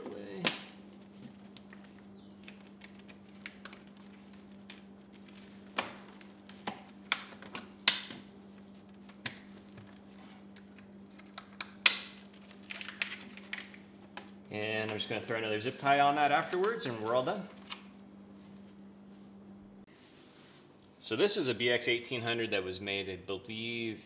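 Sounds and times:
steady low hum: 0:00.0 - 0:24.0.

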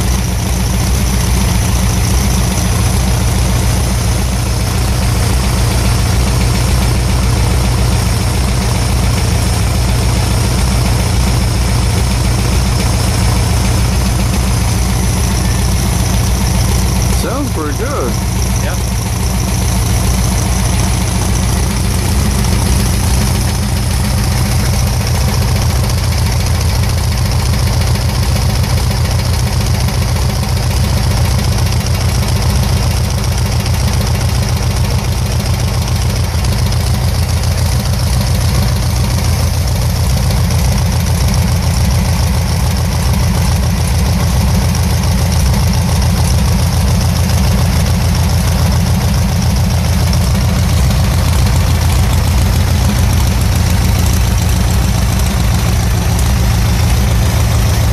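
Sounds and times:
air-cooled engine idling: 0:00.0 - 0:57.9.

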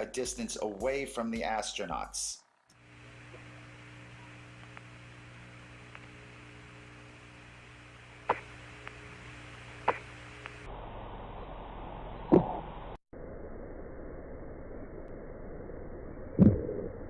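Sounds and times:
radio hiss and hum: 0:00.0 - 0:13.0
sharp clicks: 0:08.3 - 0:09.0, 0:09.8 - 0:10.6.

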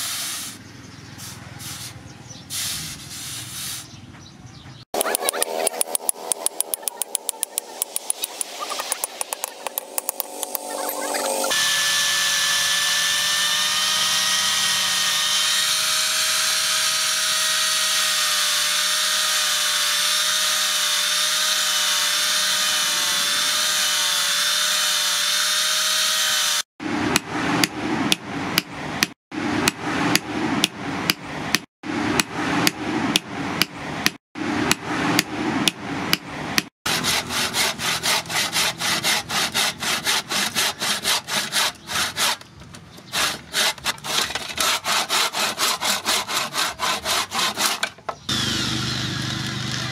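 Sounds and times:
angle grinder sanding wood: 0:05.0 - 0:26.7, 0:36.9 - 0:49.9
handsaw cutting wood: 0:05.0 - 0:26.7, 0:36.9 - 0:49.9.

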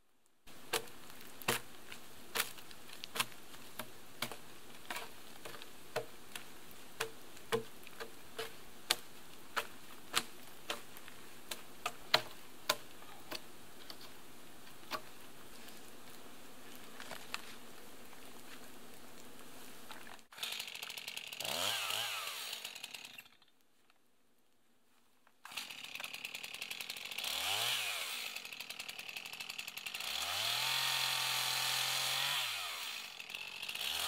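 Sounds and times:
wooden cracks and knocks: 0:00.7 - 0:06.1.

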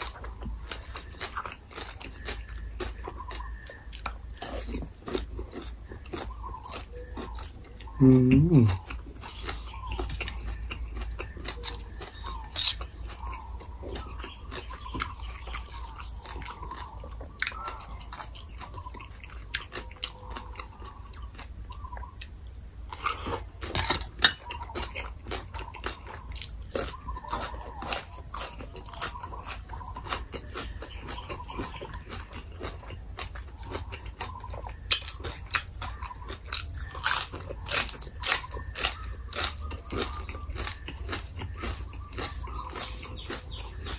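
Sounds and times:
person chewing crunchy food: 0:00.0 - 0:43.9.

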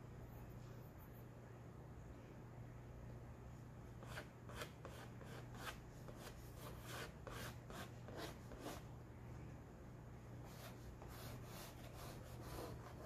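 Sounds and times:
low steady hum: 0:00.0 - 0:13.0
chalk scratching on board: 0:04.0 - 0:08.9, 0:10.4 - 0:13.0.

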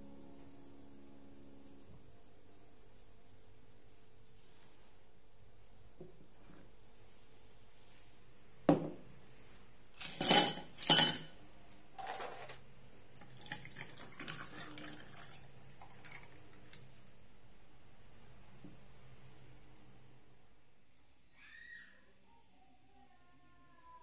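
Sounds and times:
knock on counter: 0:08.7 - 0:09.0
liquid pouring into glass: 0:13.2 - 0:16.8.

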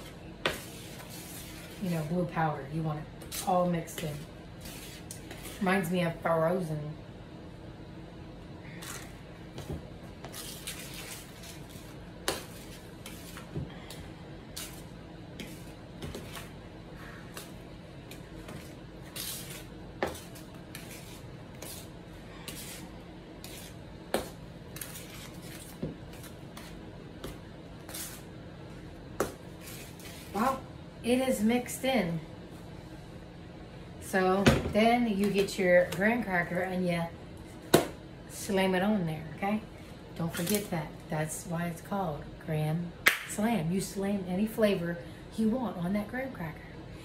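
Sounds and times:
spatula squishing and scraping: 0:00.0 - 0:02.2, 0:03.2 - 0:05.8, 0:10.2 - 0:13.6, 0:17.4 - 0:28.3.

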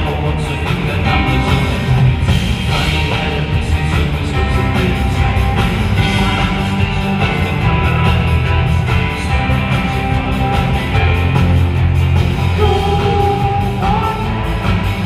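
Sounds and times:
live rock band: 0:00.0 - 0:15.0
strong steady bass line: 0:00.0 - 0:15.0.

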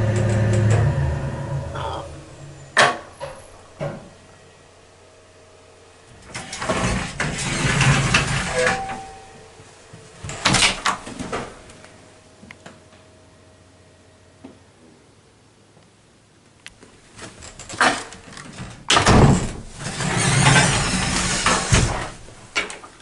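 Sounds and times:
metal gate rattling open: 0:06.2 - 0:09.6, 0:17.5 - 0:22.9
gate squeak: 0:06.3 - 0:09.6, 0:19.8 - 0:22.2.

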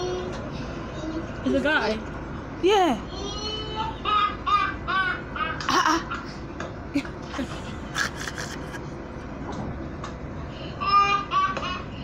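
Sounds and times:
man's high cackling laughter: 0:07.0 - 0:08.8.

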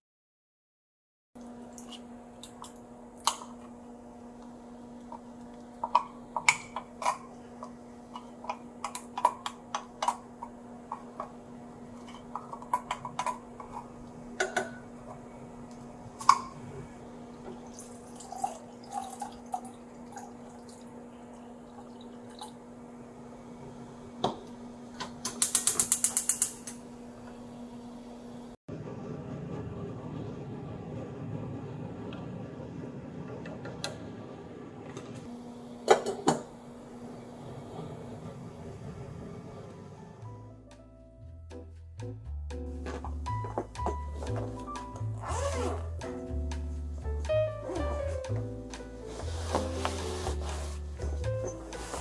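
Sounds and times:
gas stove igniter clicking: 0:25.0 - 0:26.8.

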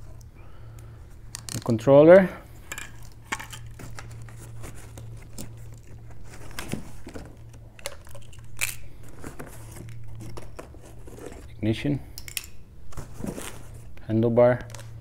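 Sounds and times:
steady low hum: 0:00.0 - 0:15.0
packaging rustling and crinkling: 0:03.0 - 0:11.5, 0:12.9 - 0:14.0.

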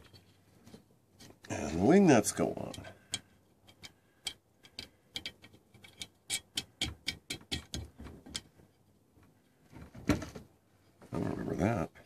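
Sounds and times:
wing nuts clicking on metal: 0:02.6 - 0:08.6.

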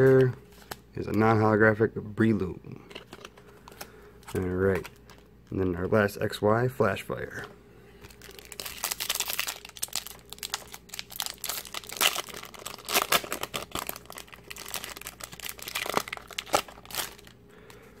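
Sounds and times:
foil wrapper tearing and crinkling: 0:08.0 - 0:17.4.

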